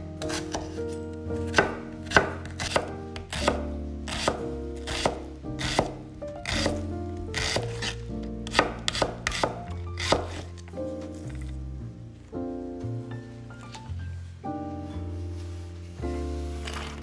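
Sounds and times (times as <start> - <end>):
knife chopping on wooden board: 0.2 - 0.8, 1.4 - 10.5.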